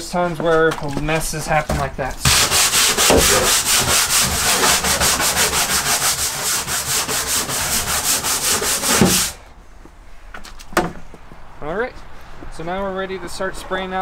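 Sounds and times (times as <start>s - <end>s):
scrub brush scrubbing plastic floor: 0.7s - 9.4s.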